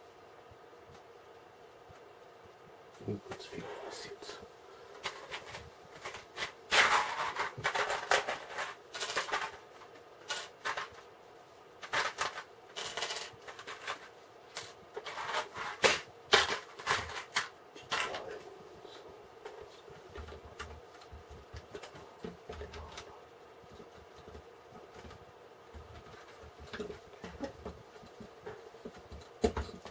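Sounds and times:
plastic bricks clattering: 5.0 - 11.0, 11.8 - 14.1.

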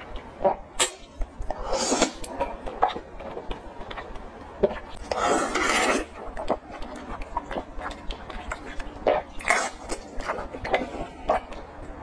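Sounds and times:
wet chewing mouth sounds: 0.0 - 12.0
noisy sucking sounds: 1.5 - 2.3.

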